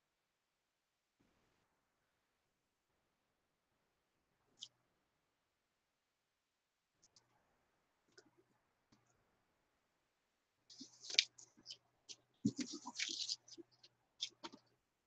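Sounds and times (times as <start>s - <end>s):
paper crinkling and rustling: 10.7s - 11.8s, 12.4s - 14.6s.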